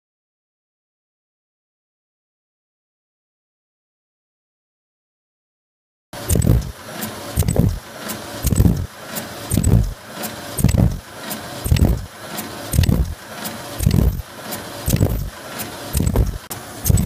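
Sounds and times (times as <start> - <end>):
machine low thumps: 6.2 - 17.0
sharp metallic clicks: 6.2 - 17.0
steady mechanical clatter: 6.2 - 17.0.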